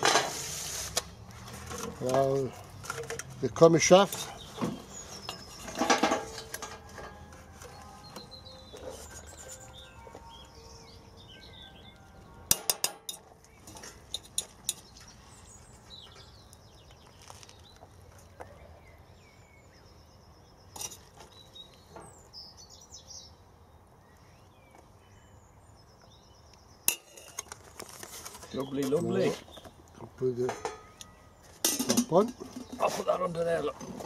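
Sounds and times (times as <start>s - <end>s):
small birds chirping: 1.0s - 34.0s
metal server clinking on steel pot: 26.9s - 27.5s, 30.5s - 32.8s.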